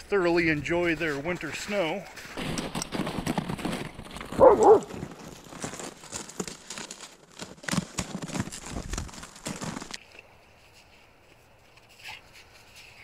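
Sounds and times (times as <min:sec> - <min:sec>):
footfalls crunching in snow: 0:00.0 - 0:11.1
dog yipping: 0:04.4 - 0:04.9.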